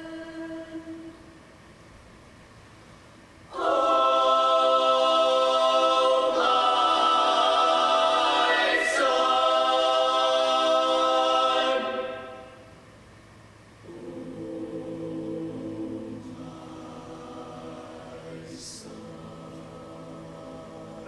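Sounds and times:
mixed choir singing: 3.5s - 12.6s, 13.8s - 21.0s.

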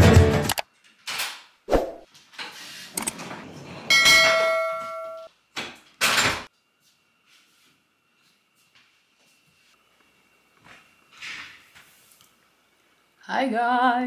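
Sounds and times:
bell-like chime: 3.9s - 5.3s.

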